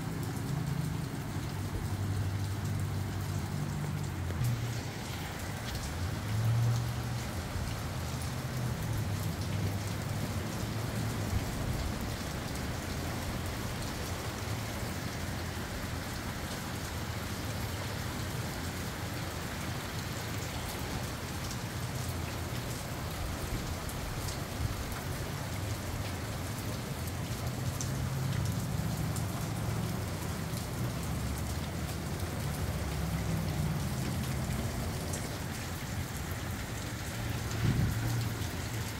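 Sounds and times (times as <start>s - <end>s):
steady rain falling: 0.0s - 38.9s
wind gusts rumbling: 37.3s - 38.9s.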